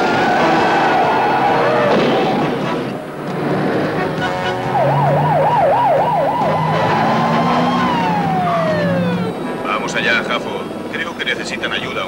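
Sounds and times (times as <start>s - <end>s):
police siren warbling: 4.3s - 9.6s.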